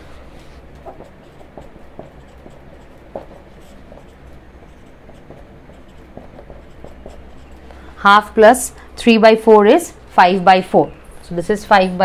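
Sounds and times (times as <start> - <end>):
faint low hum: 0.0 - 12.0
marker scratching on whiteboard: 0.4 - 8.6
marker tap: 0.8 - 7.7.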